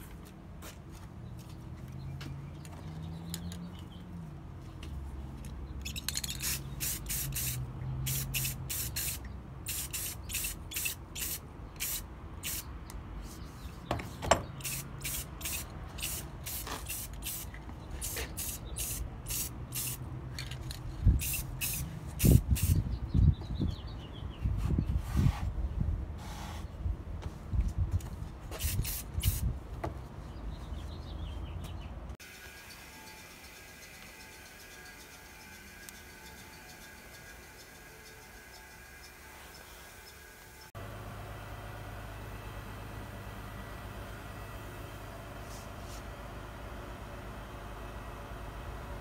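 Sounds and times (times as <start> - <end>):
spray can hissing bursts: 6.3 - 12.7, 14.6 - 20.0, 21.2 - 22.8, 28.6 - 29.4.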